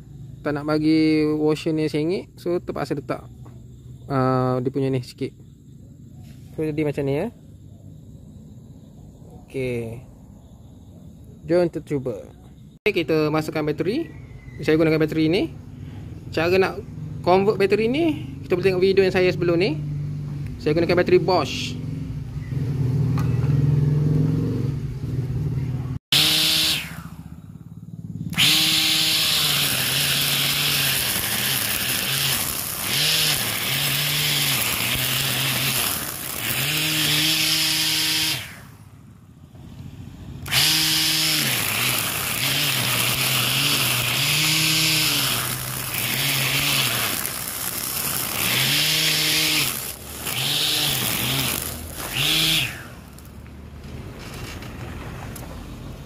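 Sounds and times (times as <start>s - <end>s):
grass trimmer motor whine: 26.1s - 38.9s, 40.4s - 53.4s
trimmer line swishing through grass: 29.0s - 38.6s, 40.6s - 53.0s.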